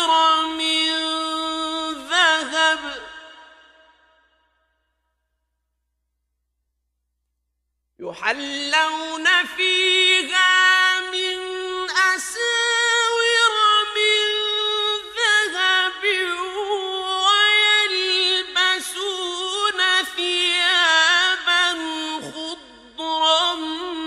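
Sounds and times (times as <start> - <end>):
man reciting melodically: 0.0 - 3.7, 8.0 - 24.0.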